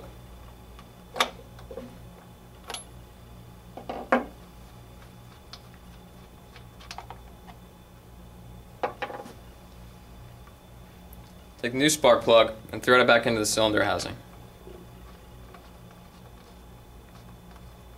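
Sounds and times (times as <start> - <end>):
low steady hum: 0.0 - 17.9.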